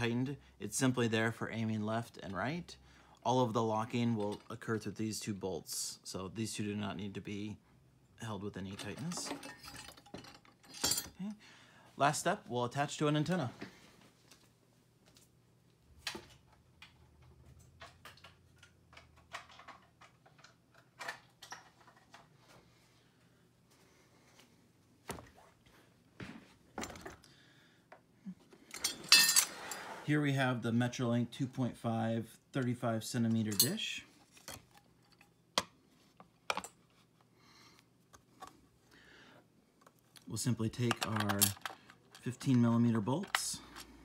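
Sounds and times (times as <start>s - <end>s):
short scrape: 29.4s - 30.1s.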